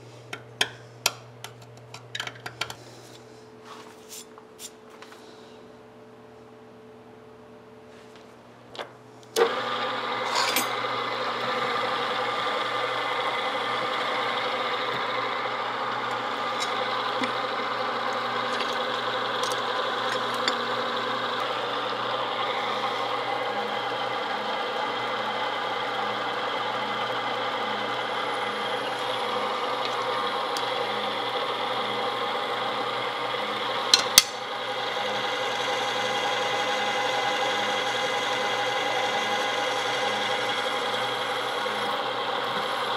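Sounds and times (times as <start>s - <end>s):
drill press running: 9.3s - 42.9s
drill bit cutting steel: 9.5s - 42.9s.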